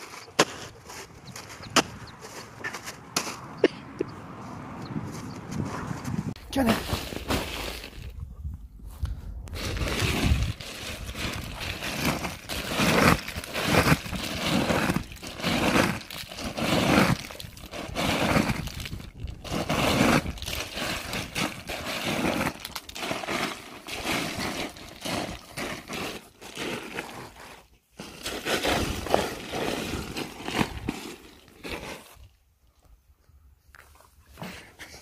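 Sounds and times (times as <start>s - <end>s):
ice cubes clattering and crunching: 6.6s - 8.1s, 9.6s - 32.1s.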